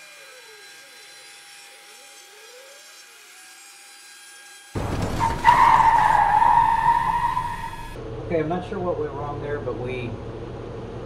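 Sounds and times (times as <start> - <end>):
cnc router cutting plywood: 0.0 - 4.7.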